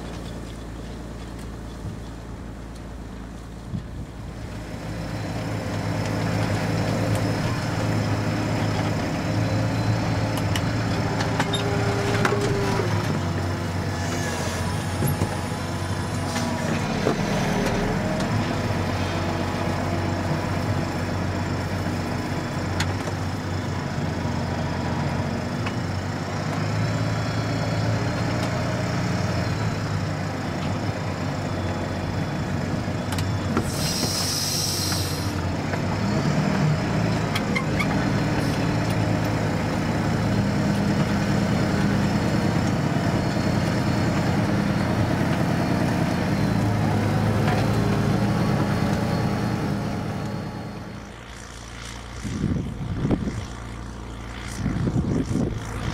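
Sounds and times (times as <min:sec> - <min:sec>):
tractor engine running: 0:00.0 - 0:55.9
brief hiss: 0:33.6 - 0:35.4.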